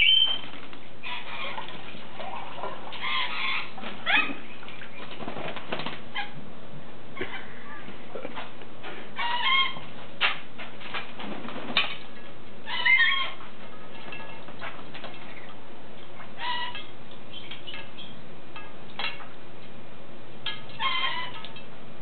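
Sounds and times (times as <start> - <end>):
parrot calls: 0.0 - 0.4, 2.2 - 5.0, 9.2 - 9.8, 12.6 - 13.4, 16.2 - 18.2, 20.7 - 21.5.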